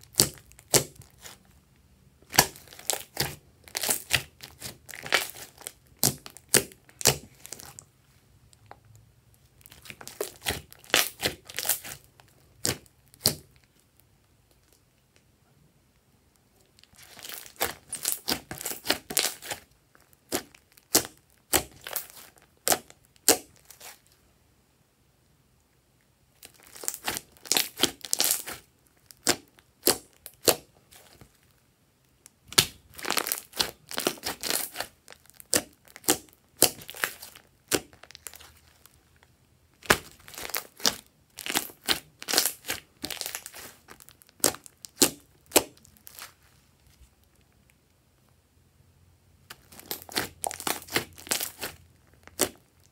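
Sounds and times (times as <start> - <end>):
slime clicking and crackling: 0.0 - 1.5, 2.2 - 7.9, 9.6 - 14.0, 16.7 - 24.1, 26.4 - 31.5, 32.2 - 46.4, 49.5 - 52.9.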